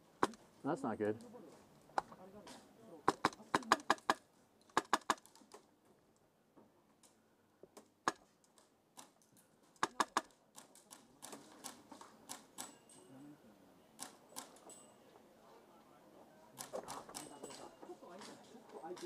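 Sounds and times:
airsoft gun clicks: 2.0 - 5.6, 8.0 - 12.8.

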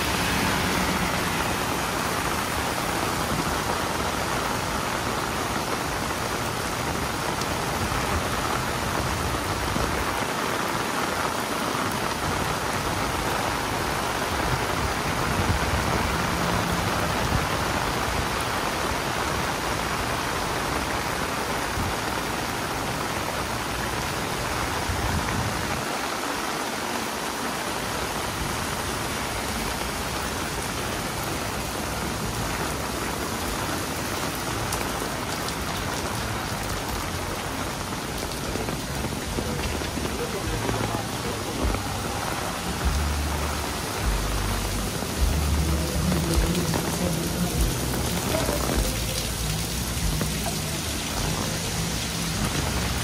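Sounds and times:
heavy rain on an umbrella: 0.0 - 53.0.

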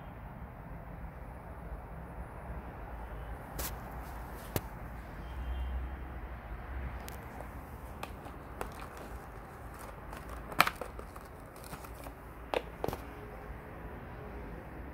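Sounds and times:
cardboard box taps and clicks: 7.0 - 13.3.

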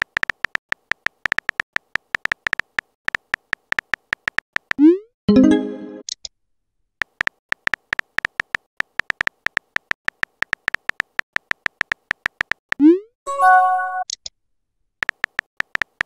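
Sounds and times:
brief multi-tone chime: 13.3 - 14.0.

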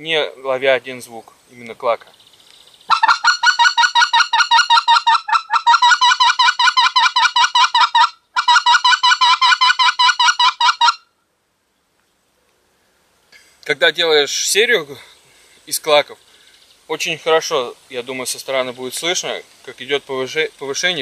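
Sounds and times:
goose call clucks: 2.9 - 11.0.

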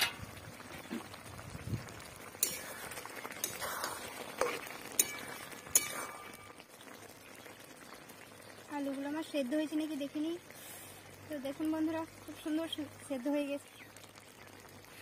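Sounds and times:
ladle stirring thick curry: 1.9 - 6.4
ladle clinking against metal pot: 4.4 - 6.5.

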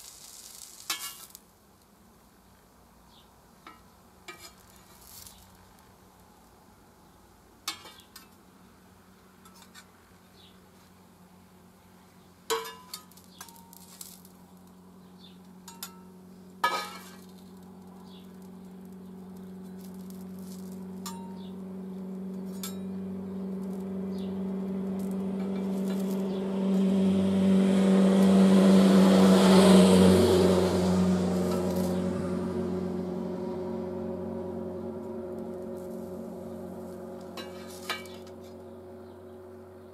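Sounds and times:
spatulas scraping on hot plate: 0.0 - 1.4, 3.7 - 5.4, 16.6 - 17.3, 37.4 - 38.4
low steady droning tone: 11.2 - 39.9.

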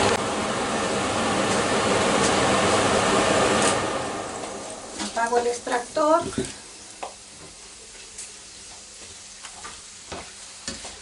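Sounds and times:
extractor fan humming: 0.0 - 8.4
pork rinds sizzling in fat: 5.1 - 11.0.

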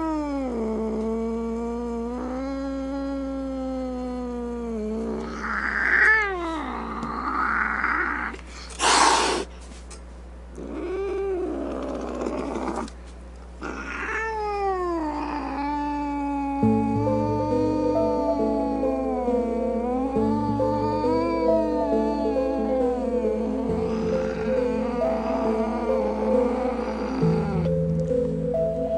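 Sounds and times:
cat yowling: 1.6 - 8.4, 13.6 - 27.7.

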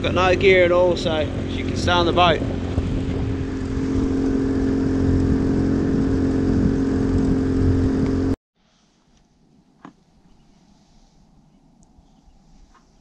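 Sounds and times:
outboard motor running: 0.0 - 8.4.

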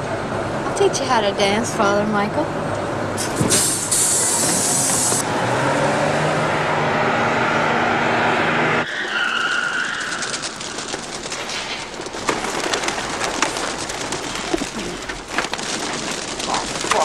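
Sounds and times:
high squeal: 6.9 - 11.9
pigeon wings fluttering: 9.3 - 17.0.

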